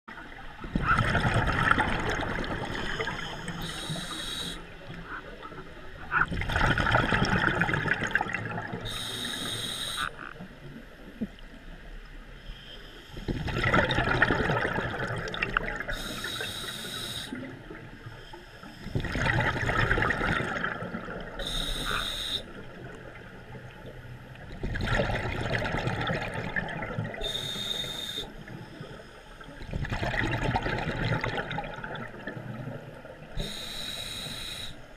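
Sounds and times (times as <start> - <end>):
scuba regulator breathing bubbles: 1.0 - 4.8, 6.5 - 10.1, 13.2 - 17.5, 18.2 - 22.7, 24.7 - 32.3, 33.3 - 34.8
regulator inhale hiss: 2.8 - 4.8, 8.8 - 10.2, 15.9 - 17.5, 21.4 - 22.6, 27.2 - 29.5, 33.4 - 34.9.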